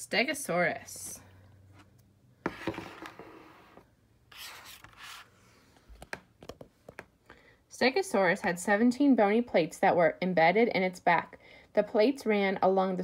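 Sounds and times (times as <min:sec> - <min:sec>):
paper rustling scrapes: 0:02.5 - 0:05.7.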